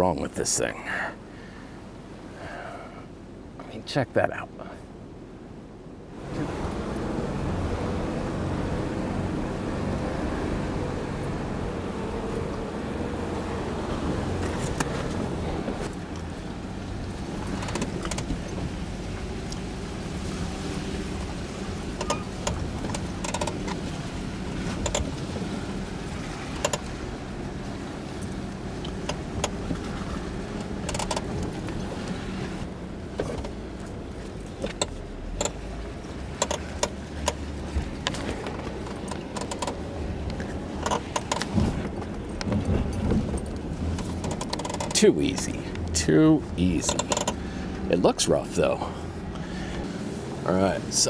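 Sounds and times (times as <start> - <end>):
engines running at low revs: 5.9 - 51.0.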